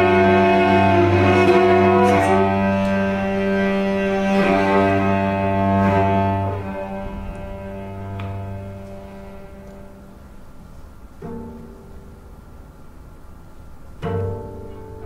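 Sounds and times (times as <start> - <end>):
cello bowed notes: 0.0 - 15.0.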